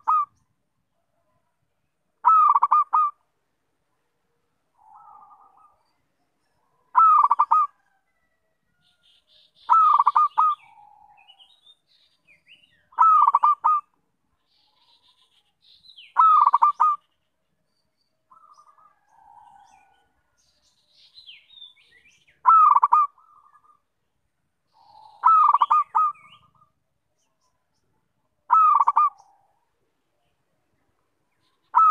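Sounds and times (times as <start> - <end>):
dove cooing: 0.0 - 0.3, 2.2 - 3.2, 4.8 - 5.8, 6.9 - 8.0, 9.7 - 11.4, 13.0 - 13.9, 16.2 - 17.0, 18.3 - 20.1, 22.4 - 23.8, 24.8 - 26.7, 28.5 - 29.6
small birds chirping: 0.0 - 31.9.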